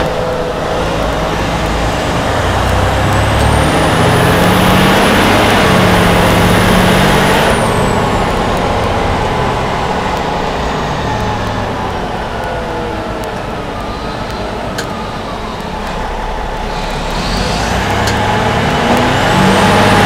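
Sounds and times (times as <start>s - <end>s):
fire truck diesel engine pulling: 0.0s - 20.0s
high whine: 0.0s - 20.0s.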